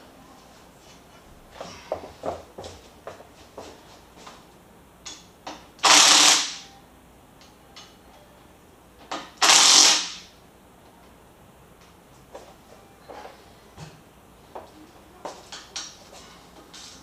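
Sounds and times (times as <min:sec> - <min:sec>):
cordless power tool bursts: 0:05.8 - 0:06.6, 0:09.4 - 0:10.2.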